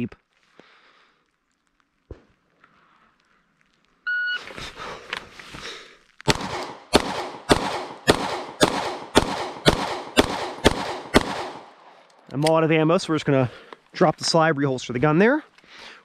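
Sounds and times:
pistol shots ringing: 6.3 - 11.8.

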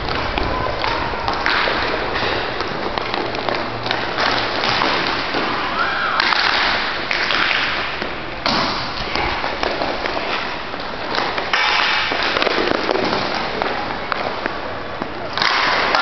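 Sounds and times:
hockey stick tapping puck: 0.0 - 16.0
rink background noise: 0.0 - 16.0.

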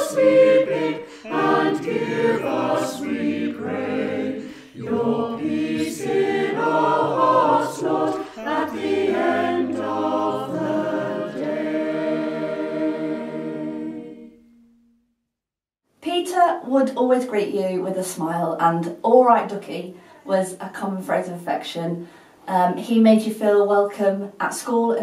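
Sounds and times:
choir singing: 0.0 - 14.6.

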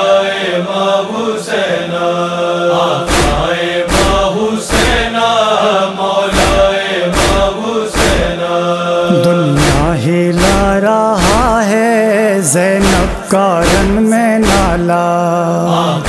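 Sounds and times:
voices chanting a drone: 0.0 - 16.0
solo voice wavering line: 9.1 - 10.1.

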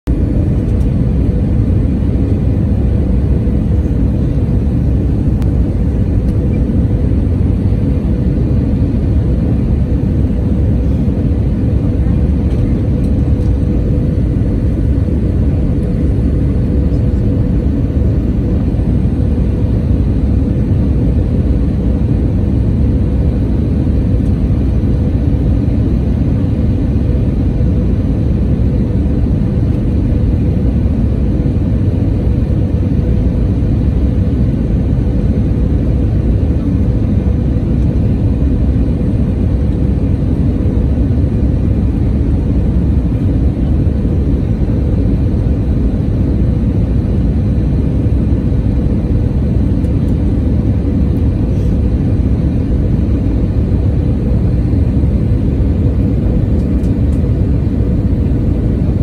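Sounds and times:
airliner cabin jet rumble: 0.0 - 59.0
faint steady hum: 0.1 - 59.0.

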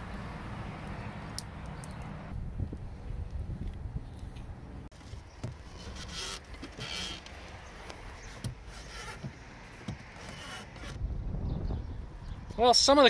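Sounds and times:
wind rumble on microphone: 1.8 - 4.9, 11.0 - 12.8.

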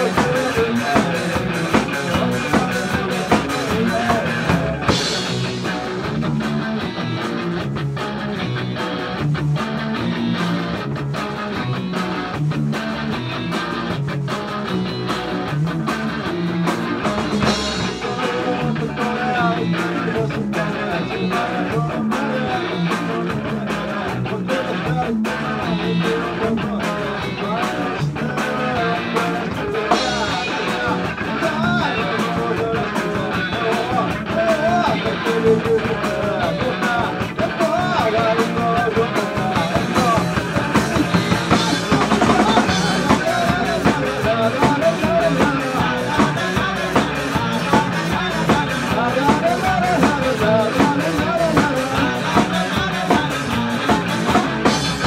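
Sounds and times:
guitars: 0.0 - 55.0
steady drum beat: 0.0 - 55.0.

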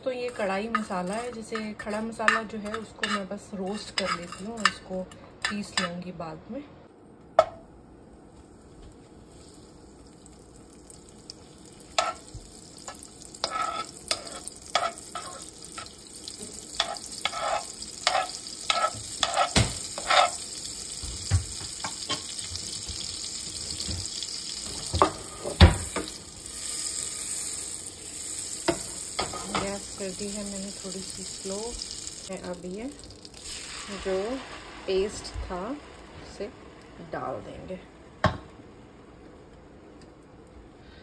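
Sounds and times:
metal spoon scraping pan: 0.2 - 6.0, 13.4 - 15.9, 16.7 - 20.4
hot oil sizzling: 8.3 - 37.2.

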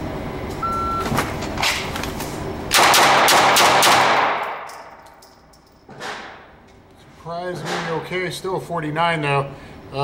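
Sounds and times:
shot timer beep: 0.6 - 1.1
pistol shots echoing: 2.7 - 5.0.

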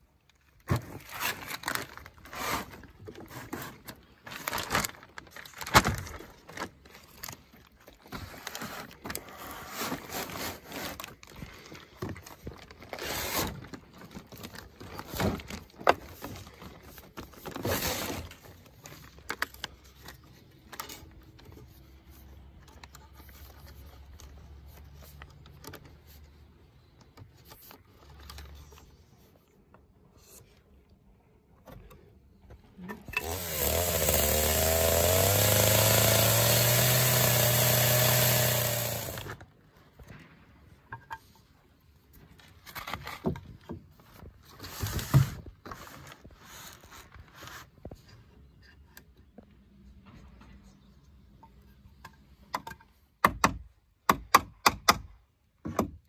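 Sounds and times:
plastic bag rustling: 0.8 - 19.6.

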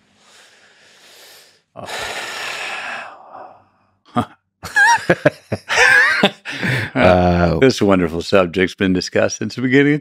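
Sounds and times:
man laughing: 4.1 - 7.4
man sighing: 6.4 - 7.3.

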